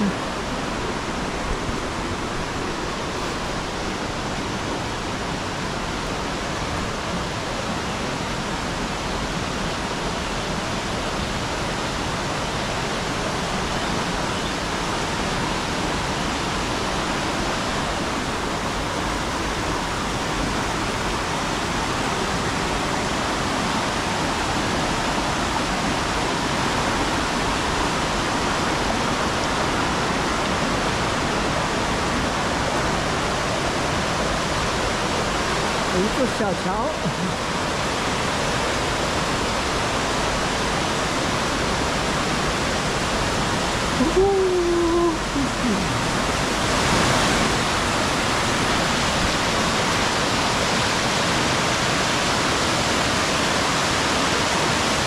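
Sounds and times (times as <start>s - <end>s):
flowing water rushing: 0.0s - 55.0s.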